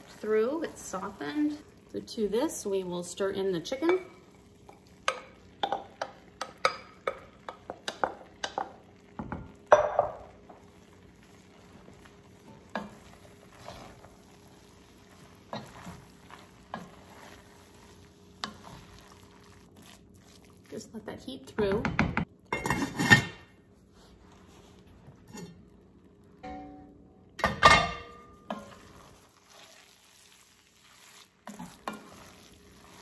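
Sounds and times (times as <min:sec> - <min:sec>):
spoon stirring rice in pot: 0:03.6 - 0:20.7, 0:28.4 - 0:33.0
spoon knocking against pot: 0:05.1 - 0:10.2.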